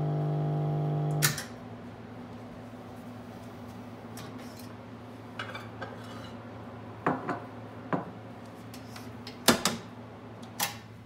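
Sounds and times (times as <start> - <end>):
dishes clinking and knocking: 7.1 - 7.4.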